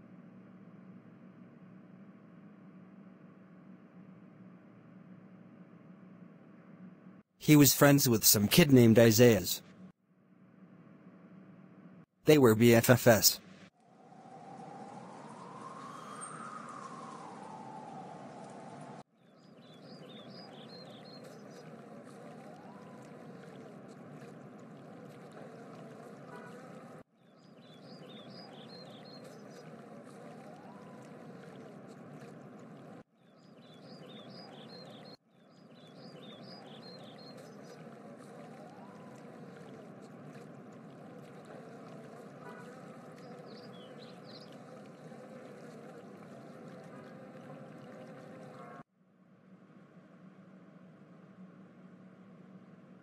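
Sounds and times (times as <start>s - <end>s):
faint rushing water: 12.3s - 48.9s.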